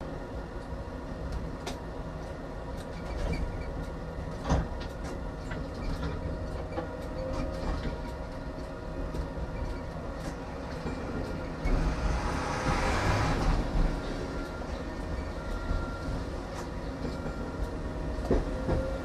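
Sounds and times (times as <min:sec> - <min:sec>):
tram rumbling with humming tone: 0:00.0 - 0:19.0
wheels knocking on rails: 0:14.7 - 0:19.0.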